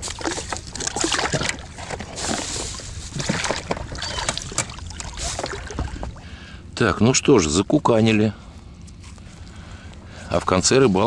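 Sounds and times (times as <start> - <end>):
water splashing at boat side: 0.0 - 6.4.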